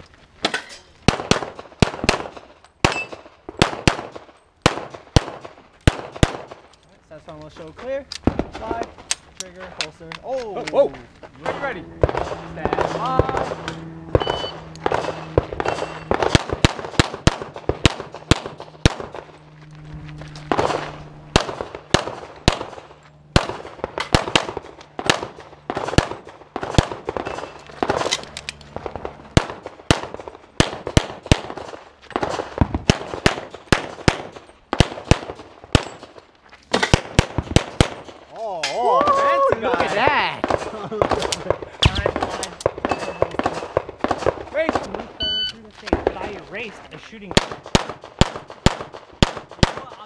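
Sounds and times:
pistol shots: 1.0s - 6.6s, 12.0s - 19.5s, 20.5s - 28.2s, 28.8s - 38.2s, 40.4s - 45.0s, 47.3s - 50.0s.

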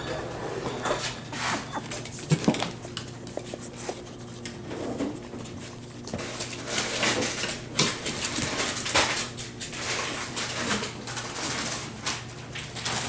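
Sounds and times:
dog sniffing and snuffling: 0.1s - 8.8s.

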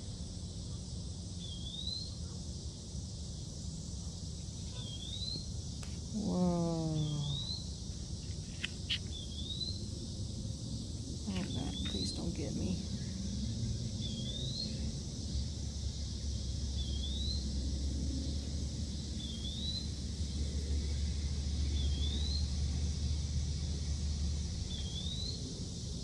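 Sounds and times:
bird rising call: 6.2s - 7.6s.

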